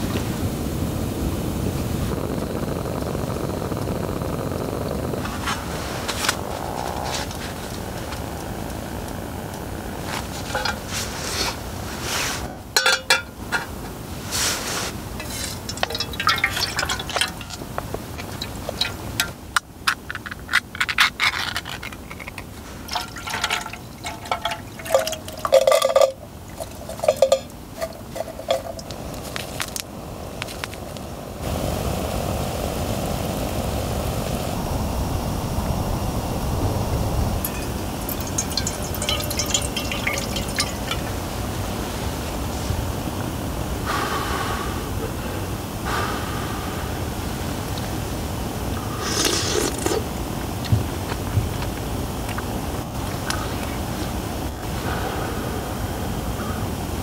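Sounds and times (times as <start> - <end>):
steady gas hiss: 0.0 - 57.0
clinks of can and cookware: 10.5 - 10.8, 12.8 - 13.7, 15.2 - 17.6, 18.2 - 19.4, 22.3 - 29.0, 37.5 - 41.2
thick liquid pouring into pot: 15.2 - 19.3, 22.7 - 28.9, 37.4 - 41.6.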